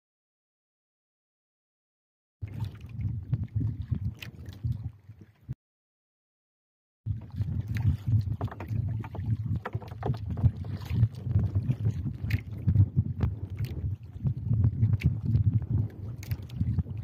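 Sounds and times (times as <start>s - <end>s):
wind rumble on microphone: 2.4s - 5.6s, 7.1s - 17.0s
fish knocking on wooden boat: 8.3s - 11.6s.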